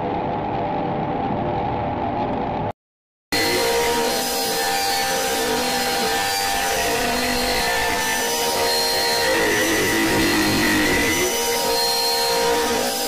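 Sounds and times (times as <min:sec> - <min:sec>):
distorted noise drone: 0:03.4 - 0:12.8.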